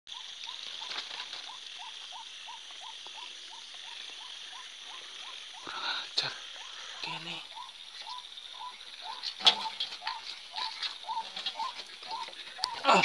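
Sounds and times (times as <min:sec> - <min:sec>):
high-pitched insect buzz: 0:00.1 - 0:13.0
leaves rustling: 0:00.1 - 0:13.0
animal rising chirps: 0:06.4 - 0:13.0.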